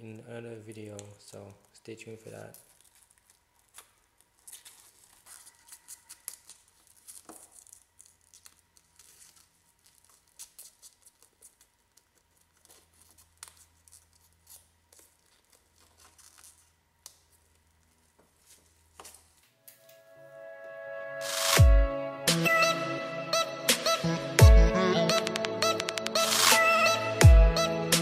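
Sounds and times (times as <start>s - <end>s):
rubber coating crackling as peeled: 0.5s - 19.6s.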